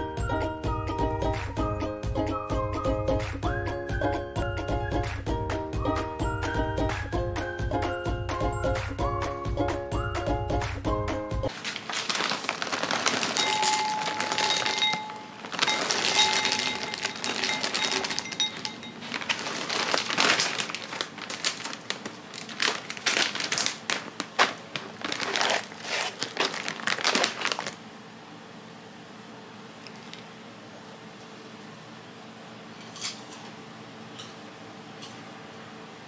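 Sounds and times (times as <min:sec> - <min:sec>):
plastic bag crinkling: 0:11.5 - 0:27.8
popcorn pouring into glass bowl: 0:11.5 - 0:27.8.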